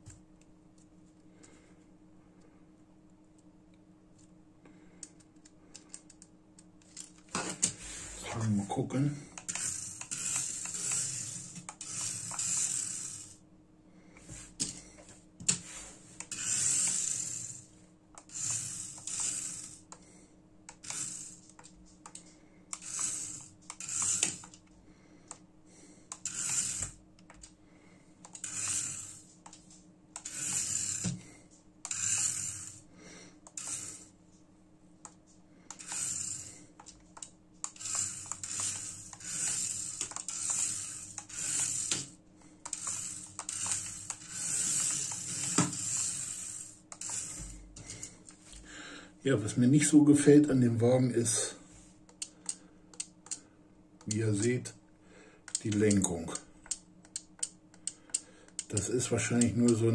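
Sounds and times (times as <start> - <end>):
small electric motor whirring: 9.3 - 13.4, 16.2 - 19.9, 20.7 - 21.5, 22.7 - 24.6, 26.1 - 27.0, 28.3 - 29.3, 30.2 - 32.8, 33.5 - 34.1, 35.7 - 36.8, 37.6 - 47.6
sharp clicks: 52.1 - 53.4, 55.5 - 59.8.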